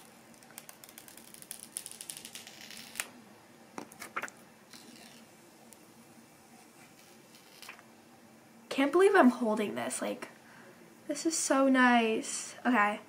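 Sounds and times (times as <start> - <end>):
plastic film peeling and crinkling: 0.0 - 3.1, 3.9 - 5.3, 6.8 - 7.8.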